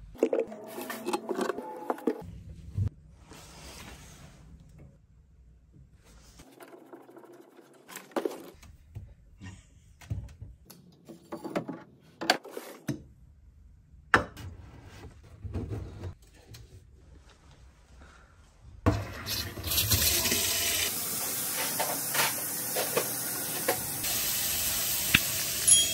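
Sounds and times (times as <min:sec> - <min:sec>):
water running into steel sink: 0:18.9 - 0:25.9.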